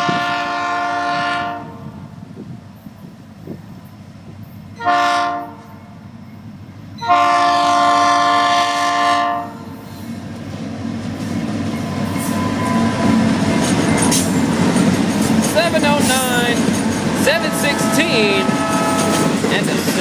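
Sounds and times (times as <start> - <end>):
locomotive air horn blasts: 0.0 - 1.9, 4.8 - 5.8, 7.0 - 9.8, 17.3 - 19.3
locomotive rumble: 0.0 - 20.0.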